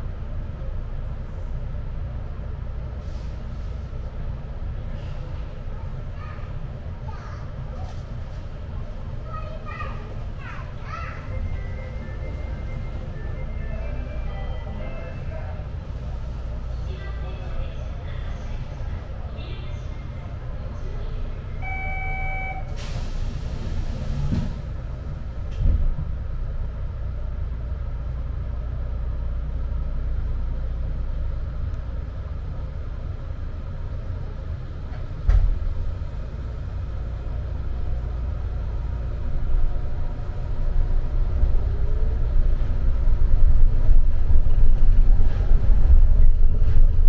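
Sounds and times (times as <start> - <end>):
train running rumble: 0.0 - 47.0
short electronic beep: 21.6 - 22.7
hiss of air: 22.8 - 24.6.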